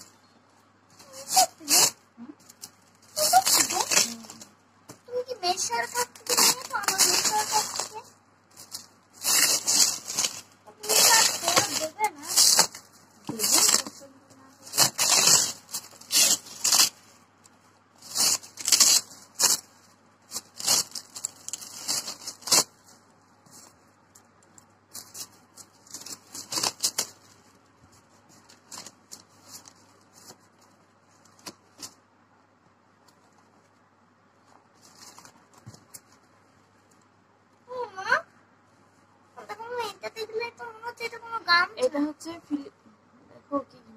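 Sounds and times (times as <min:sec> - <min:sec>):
packaging tearing and crinkling: 0:01.0 - 0:04.5, 0:05.6 - 0:14.0, 0:14.6 - 0:17.1, 0:18.0 - 0:22.9, 0:24.9 - 0:27.4, 0:28.3 - 0:30.4.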